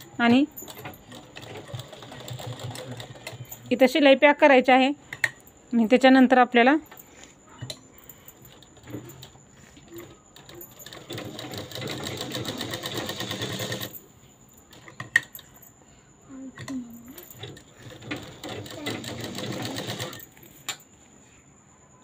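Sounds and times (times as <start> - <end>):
sewing machine stitching: 0.0 - 3.7, 8.4 - 14.0, 17.3 - 20.4.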